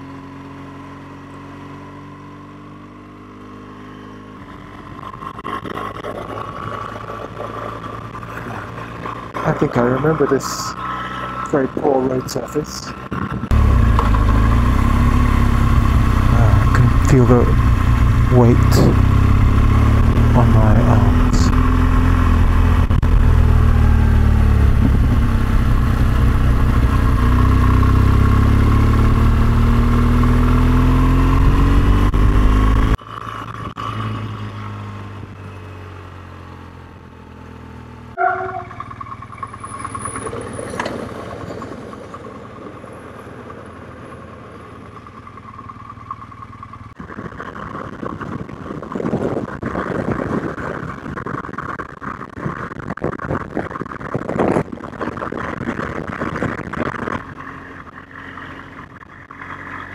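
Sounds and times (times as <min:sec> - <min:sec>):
motorcycle engine running: 0:00.0 - 0:59.9
wind rushing at speed: 0:17.6 - 0:27.4, 0:47.0 - 0:57.3.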